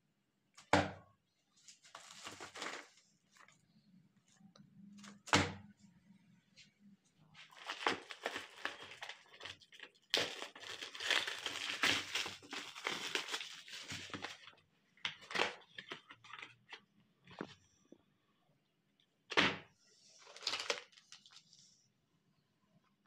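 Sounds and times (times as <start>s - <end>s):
plastic shrink-wrap crinkling and tearing: 1.8s - 3.0s, 7.4s - 14.6s, 20.2s - 21.4s.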